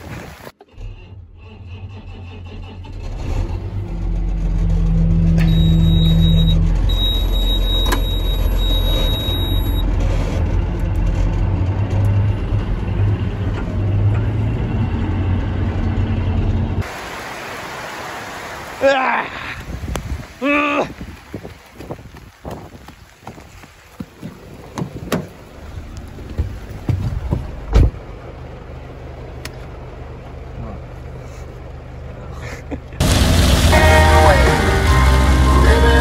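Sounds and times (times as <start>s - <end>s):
diesel tractor engine running: 0.6s - 16.8s, 24.4s - 36.0s
high electronic warning beeps: 5.4s - 9.8s.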